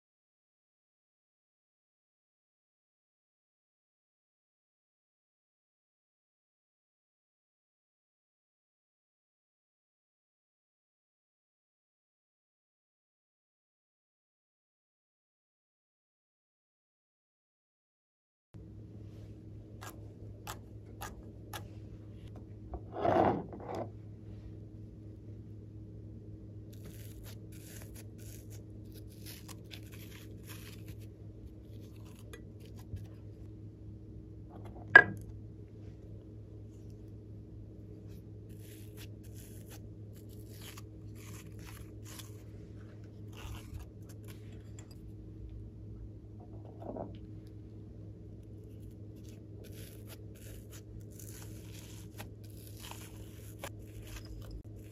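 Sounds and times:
steady low hum: 18.6 - 54.9.

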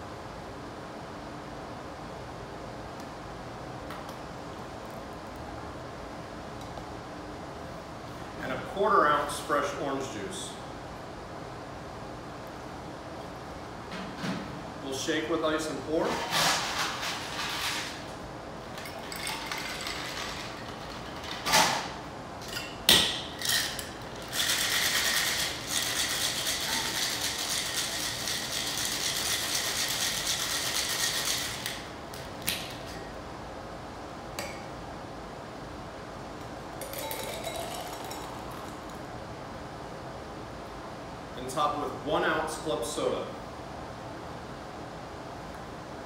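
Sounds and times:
ice rattling in cocktail shaker: 18.8 - 21.4, 23.4 - 31.8, 36.8 - 39.0
drink pouring into glass: 36.8 - 39.0.

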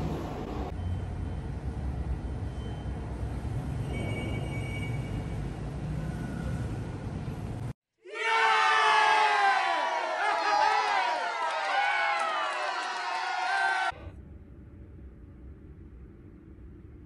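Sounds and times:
moving vehicle rumble: 0.0 - 7.8.

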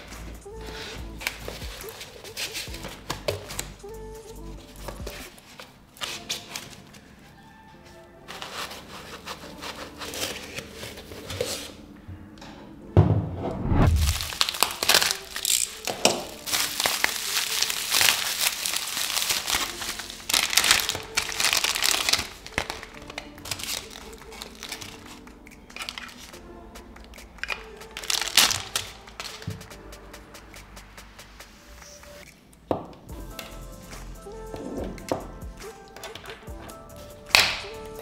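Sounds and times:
quiet background music: 0.0 - 38.0
plastic bag crinkling: 13.9 - 26.4, 27.4 - 29.6.

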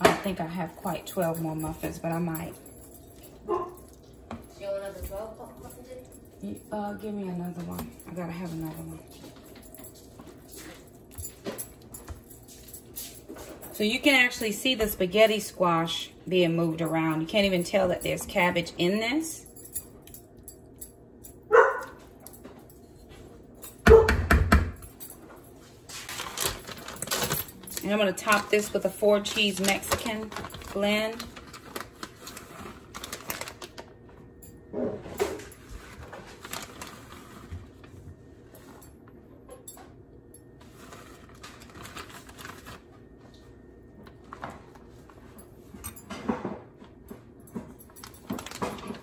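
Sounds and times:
dog barking: 3.4 - 3.9, 21.5 - 22.0, 23.9 - 24.2
plastic bag crinkling: 25.9 - 34.0, 35.4 - 38.0, 40.6 - 43.0, 48.0 - 49.0.

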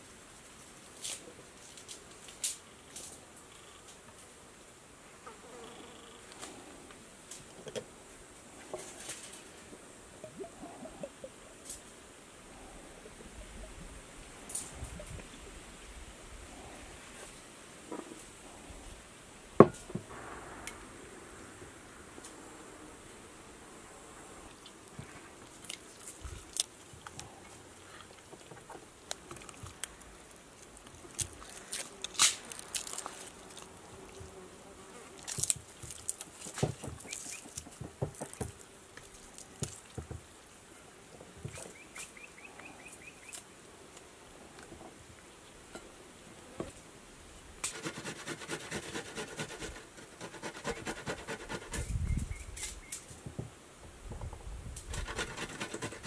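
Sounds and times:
grating on metal grater: 47.7 - 51.8, 54.9 - 56.0.

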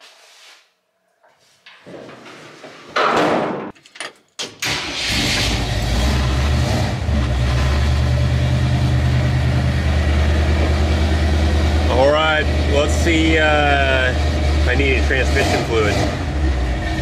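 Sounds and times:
truck engine starting and idling: 4.4 - 17.0.

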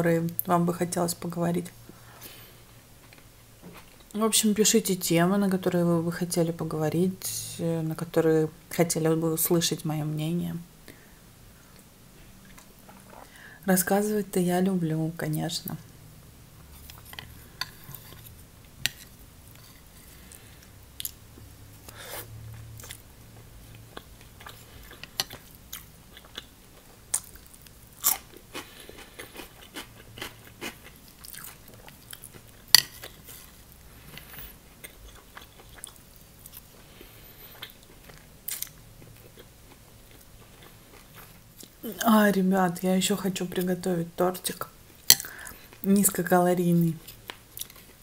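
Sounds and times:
woman chewing noodles: 23.6 - 41.8.

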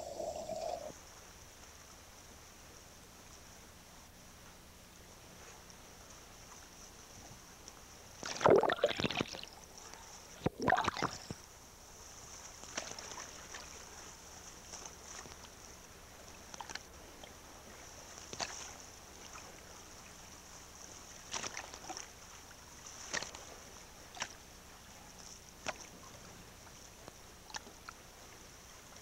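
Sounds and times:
faint high hiss: 0.0 - 29.0
water sloshing against hull: 5.2 - 29.0
water slaps and splashes: 12.6 - 13.8, 18.2 - 19.4, 21.3 - 22.2, 22.9 - 23.5, 24.1 - 24.4, 25.6 - 26.0.

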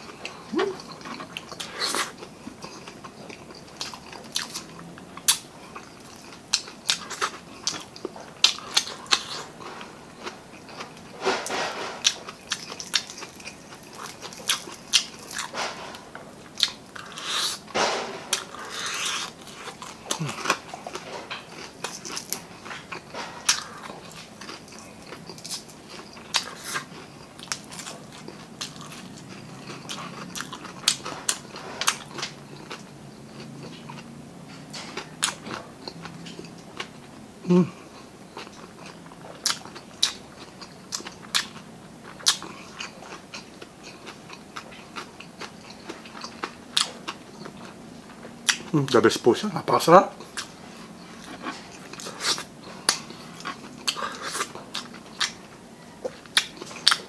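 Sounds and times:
sucking and chewing: 0.0 - 49.2, 50.1 - 57.0.

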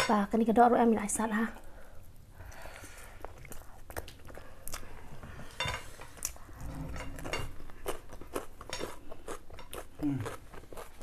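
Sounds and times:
chewing: 6.2 - 11.0.

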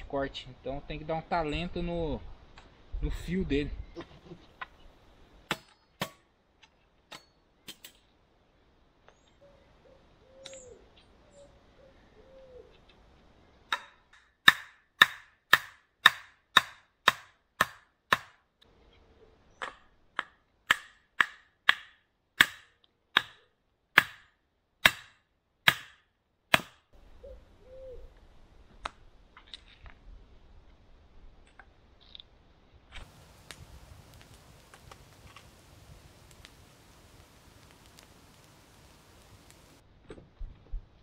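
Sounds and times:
hatchet chopping wood: 5.5 - 6.2, 13.7 - 18.4, 19.6 - 26.9.

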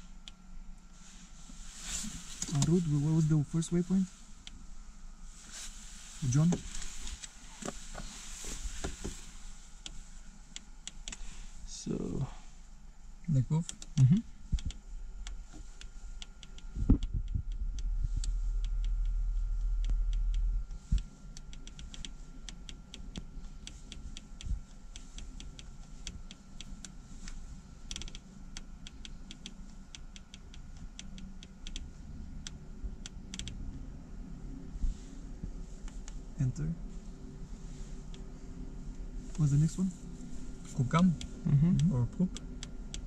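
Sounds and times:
low rumble: 0.0 - 28.8, 29.5 - 43.0.

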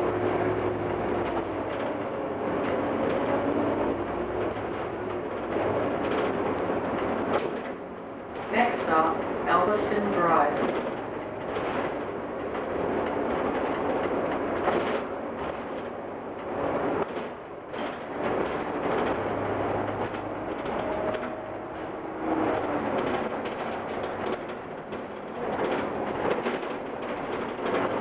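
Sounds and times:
bus engine and road noise: 0.0 - 28.0
bus fittings clicking and rattling: 0.0 - 28.0.

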